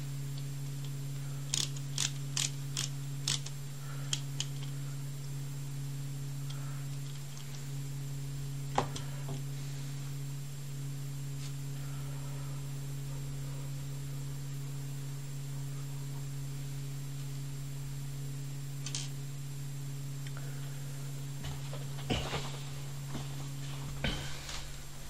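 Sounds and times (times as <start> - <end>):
faint high whine: 0.0 - 25.0
low electrical hum: 0.0 - 25.0
small plastic parts clicking: 1.5 - 4.7, 18.8 - 19.1.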